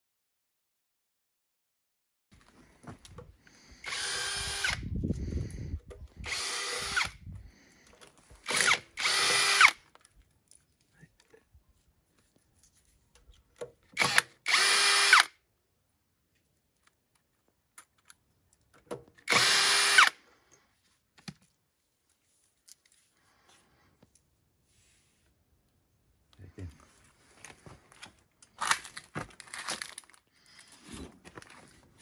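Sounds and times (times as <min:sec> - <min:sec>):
cordless drill whirring: 0:03.8 - 0:05.0, 0:06.1 - 0:07.3, 0:08.4 - 0:09.8, 0:14.0 - 0:15.4, 0:19.3 - 0:20.2
clicks of bit and bolts: 0:16.7 - 0:19.6.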